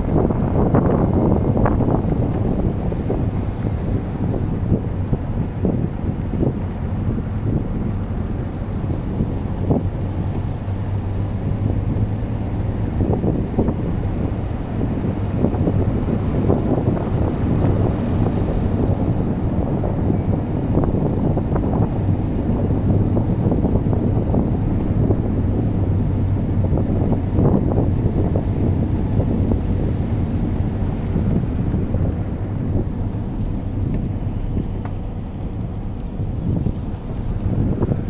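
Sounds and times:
tyres and engine rumbling: 0.0s - 38.0s
wind noise on microphone: 0.0s - 38.0s
stones crackling under tyres: 32.4s - 37.5s.

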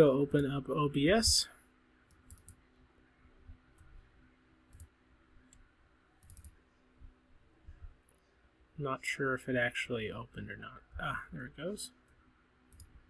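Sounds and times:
computer mouse clicks: 2.1s - 2.6s, 4.7s - 6.6s, 12.1s - 13.0s.

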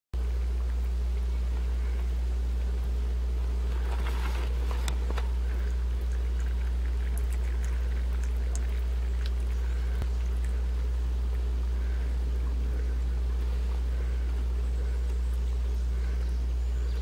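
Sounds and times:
faint trickling water: 0.2s - 17.0s
loud low machine hum: 0.2s - 17.0s
small splashes: 3.7s - 15.4s
small ticks: 4.8s - 10.7s.

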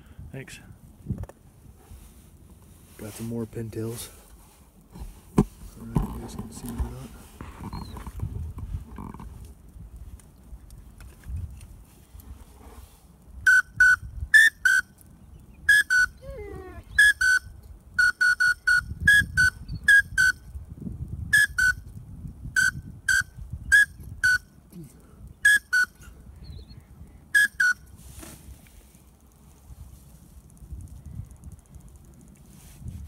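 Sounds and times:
duck whistle toots: 13.4s - 14.9s, 15.7s - 16.2s, 16.9s - 20.4s, 21.3s - 21.8s, 22.6s - 24.4s, 25.4s - 26.0s, 27.4s - 27.8s.

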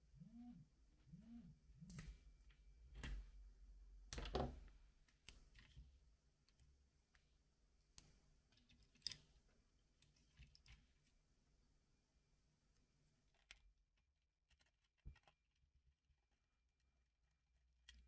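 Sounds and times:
small parts clicking: 8.0s - 9.3s.

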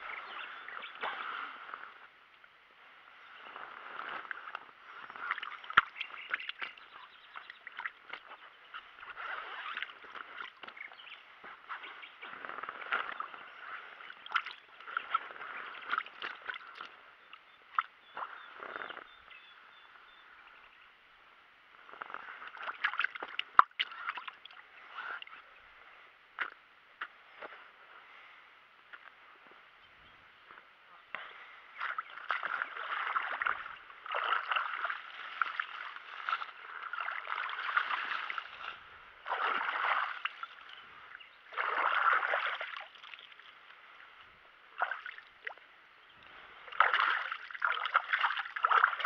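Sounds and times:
water sloshing and splashing: 3.2s - 19.1s, 21.9s - 25.4s, 31.7s - 44.1s, 44.7s - 45.6s, 46.2s - 49.0s.

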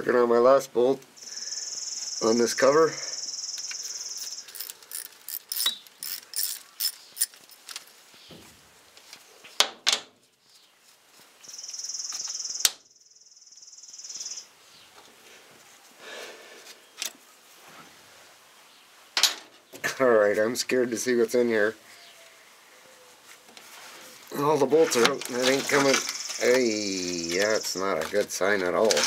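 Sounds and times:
cricket trilling: 1.2s - 7.5s, 11.4s - 14.5s, 25.2s - 28.1s
socket ratchet clicking: 4.2s - 7.8s.

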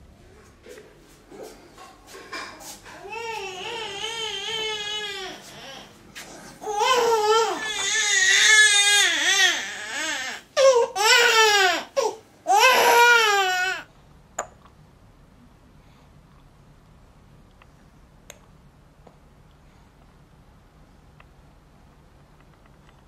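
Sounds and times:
newborn baby crying: 3.0s - 5.9s, 6.6s - 13.9s.

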